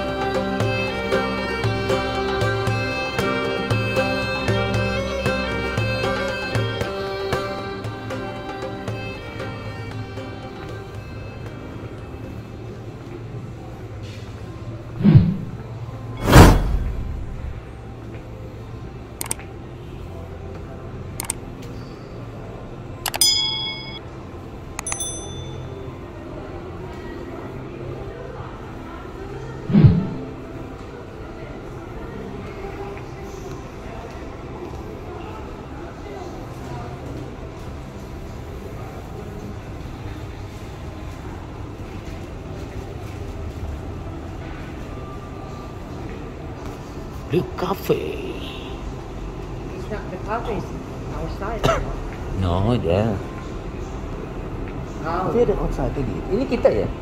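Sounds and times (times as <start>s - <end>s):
brief high chime: 23.1s - 24.0s
bright bell ding: 23.1s - 24.0s, 24.8s - 25.8s.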